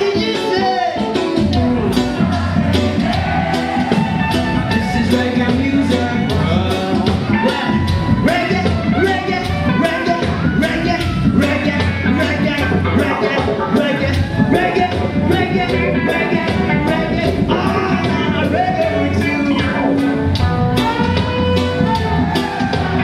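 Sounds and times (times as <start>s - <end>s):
bass line: 0.0s - 23.0s
drum beat: 0.0s - 23.0s
reggae band playing: 0.0s - 23.0s
man singing into microphone: 4.6s - 20.0s.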